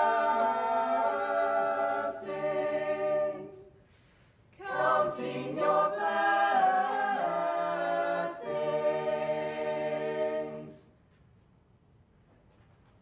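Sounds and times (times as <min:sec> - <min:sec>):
a cappella choir singing: 0:00.0 - 0:03.9, 0:04.6 - 0:11.0.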